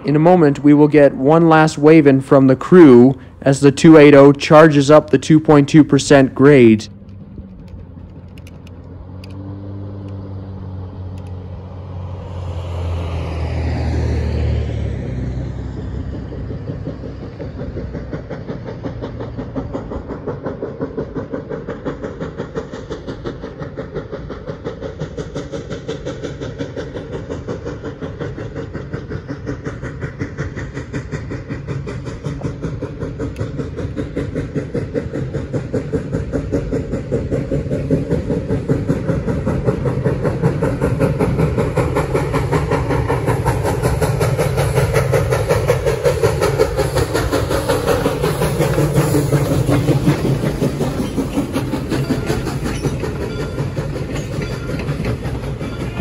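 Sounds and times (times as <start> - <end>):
steam locomotive exhaust beating: 0.0 - 56.0
steam hiss: 17.0 - 56.0.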